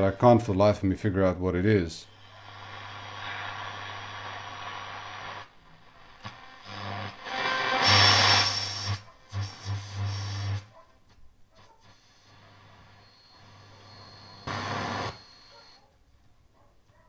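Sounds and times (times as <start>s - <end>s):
mains hum: 0.0s - 17.0s
weak radio station bursts: 0.8s - 10.9s, 11.5s - 15.9s
radio static hiss: 1.7s - 10.8s, 11.5s - 15.9s.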